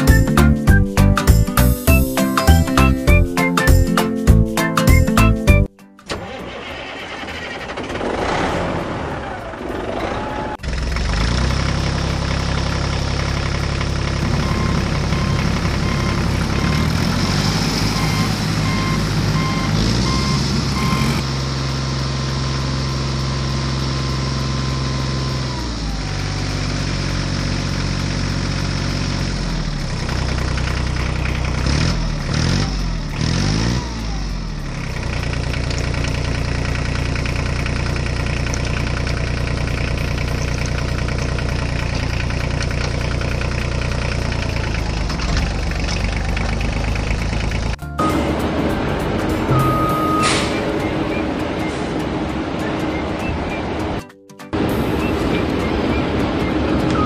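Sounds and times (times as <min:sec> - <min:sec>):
diesel engine running: 0:00.0 - 0:57.0
reversing beeper: 0:14.2 - 0:21.2, 0:48.0 - 0:53.8, 0:54.7 - 0:57.0.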